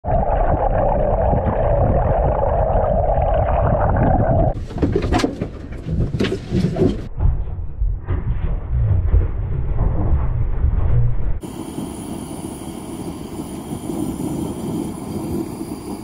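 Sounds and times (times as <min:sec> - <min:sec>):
muffled underwater rumble: 0:00.0 - 0:04.6.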